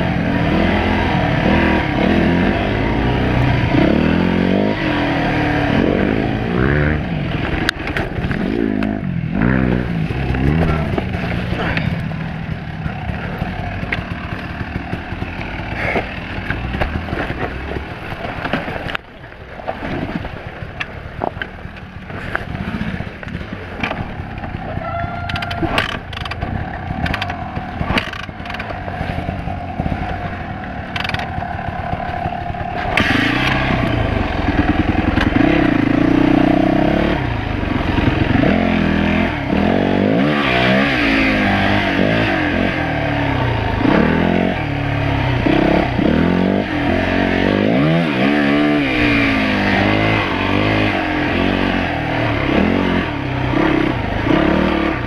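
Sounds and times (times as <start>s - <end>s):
dirt bike engine revving: 0.0s - 18.6s, 22.2s - 55.0s
bike knocks and clatter: 10.1s - 19.1s, 25.2s - 30.1s.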